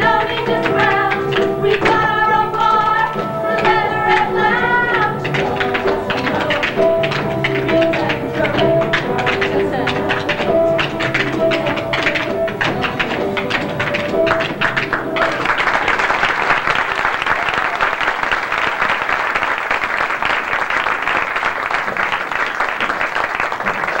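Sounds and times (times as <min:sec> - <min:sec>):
music with tapping beat: 0:00.0 - 0:15.9
audience applauding: 0:00.0 - 0:24.0.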